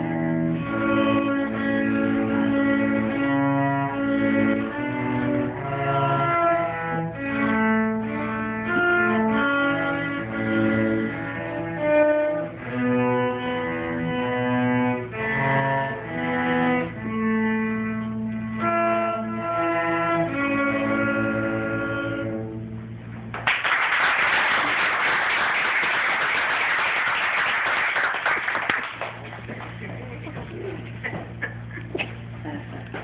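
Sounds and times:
cellos playing bowed notes: 0:00.0 - 0:23.3
audience applause: 0:23.4 - 0:29.8.

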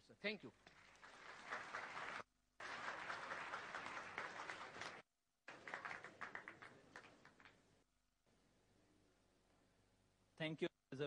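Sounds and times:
audience applauding: 0:00.6 - 0:07.6.

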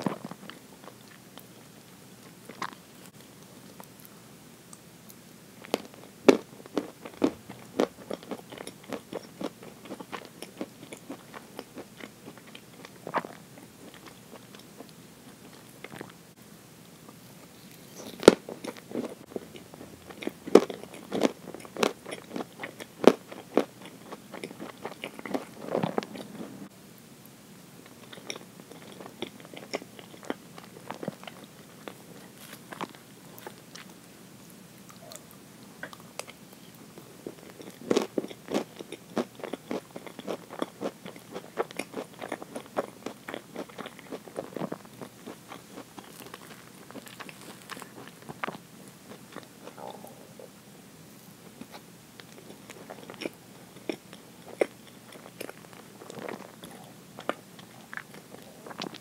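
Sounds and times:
biting and chewing: 0:05.6 - 0:16.2, 0:17.0 - 0:26.7, 0:27.9 - 0:34.0, 0:37.0 - 0:50.4, 0:51.5 - 0:59.0
wet mouth sounds: 0:49.4 - 0:50.6.

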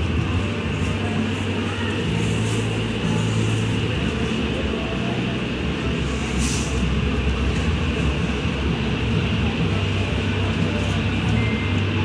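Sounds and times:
vehicle engines running: 0:00.0 - 0:12.0
brief hiss: 0:06.4 - 0:06.8.

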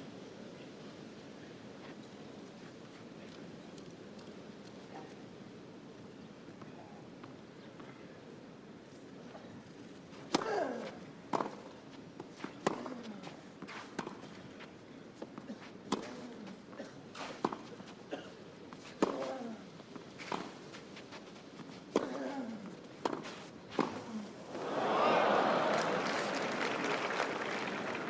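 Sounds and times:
racket striking tennis ball: 0:23.0 - 0:24.1.

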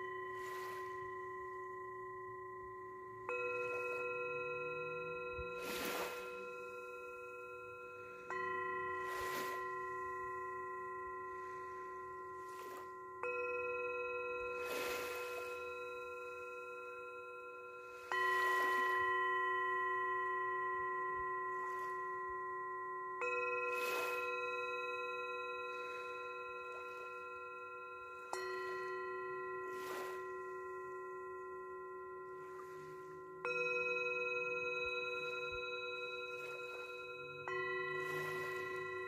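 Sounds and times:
bell chime tones: 0:00.0 - 0:39.0
small waves washing: 0:05.6 - 0:06.4, 0:09.0 - 0:09.7.

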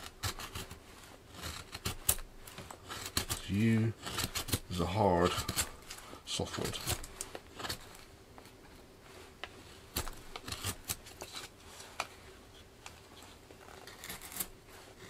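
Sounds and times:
knife cutting wood shavings: 0:00.0 - 0:08.1, 0:09.7 - 0:11.5, 0:13.6 - 0:15.0.

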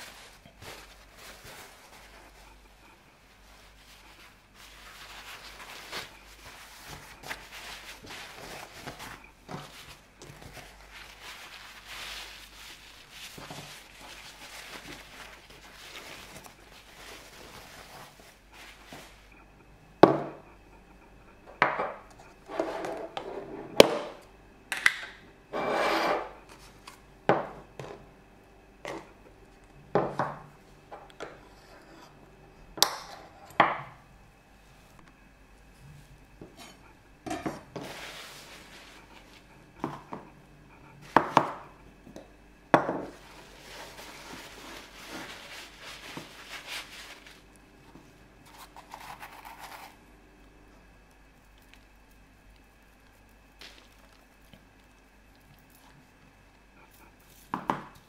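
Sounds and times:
paper towel rustling: 0:00.0 - 0:19.4, 0:37.6 - 0:41.4, 0:43.0 - 0:50.0.

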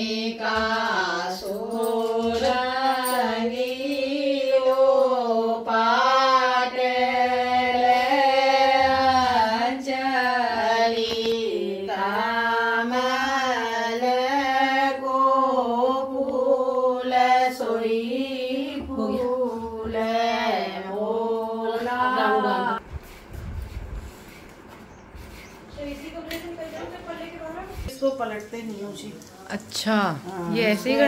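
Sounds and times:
women singing chant-like song: 0:00.0 - 0:22.8.

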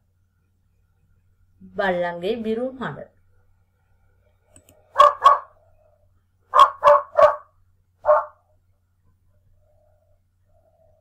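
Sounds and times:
dog barking: 0:04.9 - 0:05.6, 0:06.5 - 0:08.5.

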